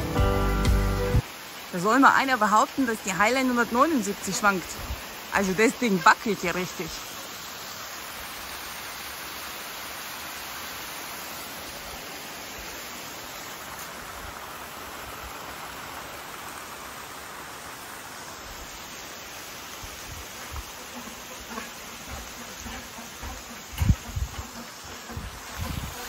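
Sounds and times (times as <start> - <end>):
waterfall roaring: 0.0 - 7.2
soft low bumps: 21.6 - 24.6.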